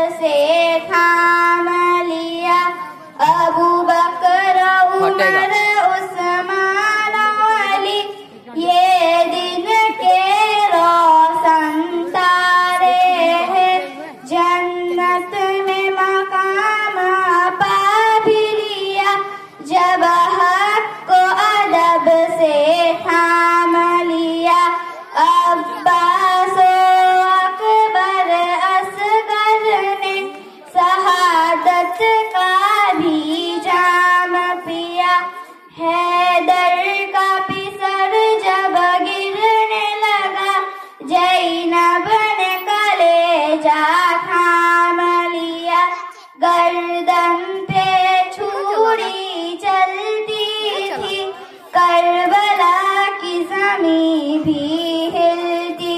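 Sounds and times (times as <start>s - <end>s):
girl singing into a microphone: 0.0s - 55.9s.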